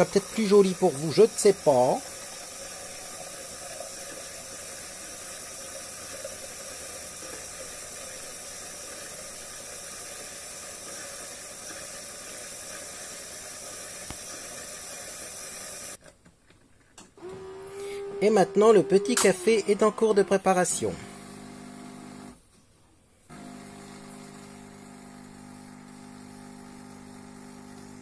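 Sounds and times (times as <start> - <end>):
steam frothing milk hiss: 0.0 - 16.0.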